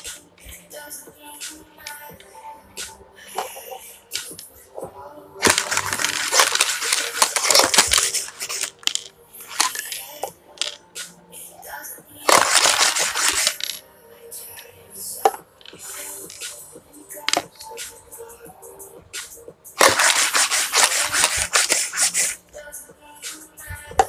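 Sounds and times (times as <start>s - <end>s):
dice rattling in plastic cup: 5.4s - 10.8s, 12.3s - 13.8s, 19.8s - 22.4s.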